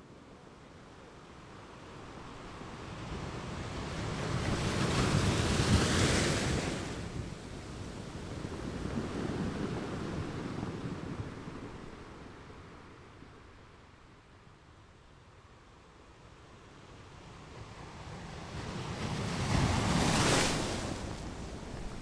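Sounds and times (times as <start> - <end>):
wind: 0.0 - 22.0
sea water rushing: 19.5 - 22.0.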